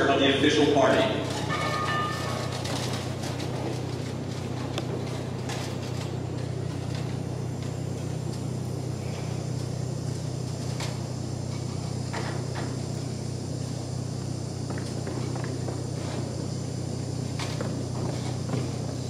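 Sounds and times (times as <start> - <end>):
low hum: 0.0 - 19.0
people shifting with clicks and knocks: 0.8 - 8.5.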